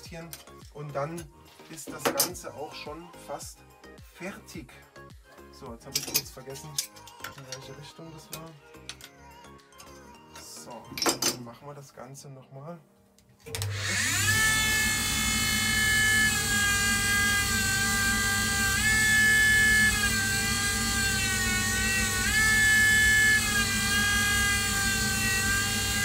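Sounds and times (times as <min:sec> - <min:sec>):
grinding wheel whining: 0:13.5 - 0:26.0.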